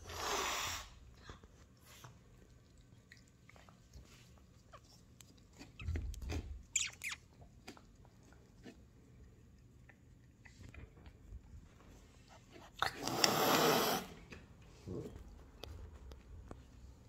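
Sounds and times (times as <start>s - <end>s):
cat chewing and crunching: 1.0s - 13.6s.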